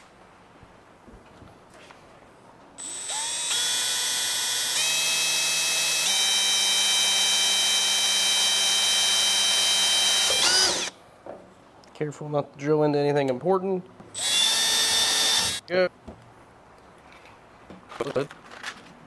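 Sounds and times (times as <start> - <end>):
electric drill whining: 2.8 - 11.0, 14.2 - 15.6.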